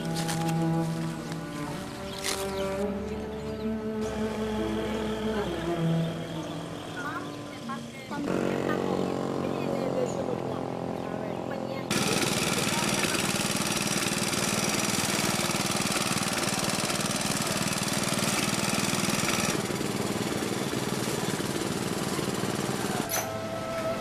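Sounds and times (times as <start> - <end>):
lawn mower engine putter: 0.0 - 2.9, 11.9 - 23.4
wavering music tone: 2.7 - 9.0.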